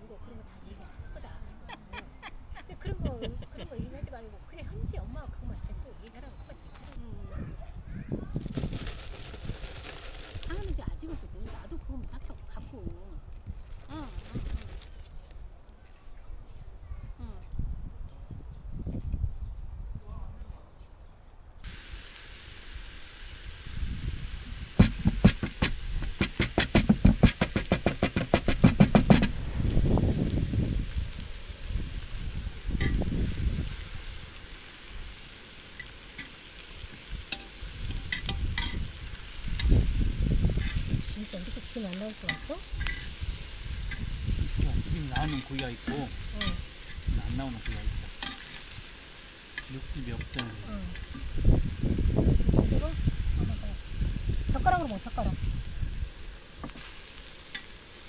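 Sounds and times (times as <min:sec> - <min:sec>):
meat sizzling on a grill pan: 0:21.6 - 0:58.0
sharp clicks or pops: 0:24.8 - 0:29.8
metal tongs clicking on pan: 0:37.3 - 0:38.8, 0:42.1 - 0:43.1, 0:45.2 - 0:45.7, 0:46.4 - 0:46.7, 0:47.6 - 0:48.6, 0:57.5 - 0:57.7.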